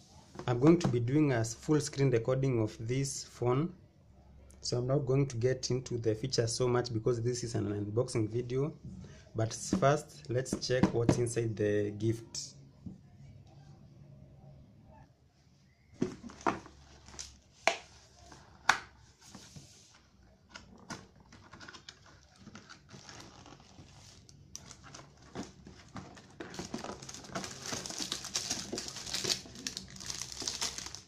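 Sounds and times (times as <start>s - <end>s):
handling noise: 16.0s - 31.0s
plastic wrapping crinkling: 20.7s - 31.0s.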